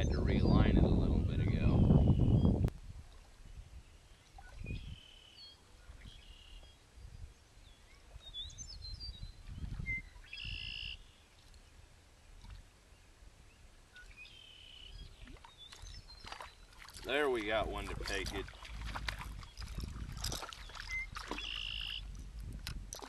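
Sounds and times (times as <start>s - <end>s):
wind rumble on microphone: 0.0s - 5.2s, 5.8s - 6.4s, 7.0s - 11.0s, 17.0s - 23.0s
birds chirping: 3.9s - 11.7s, 12.9s - 22.2s.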